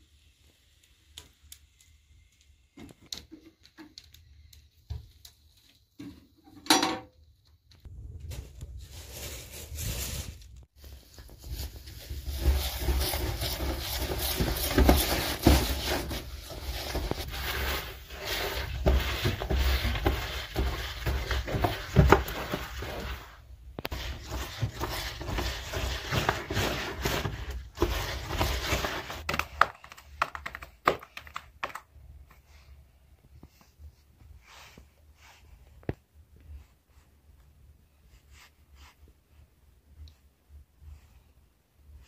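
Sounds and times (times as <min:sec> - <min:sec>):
cloth rustling and scraping: 0:07.8 - 0:29.4.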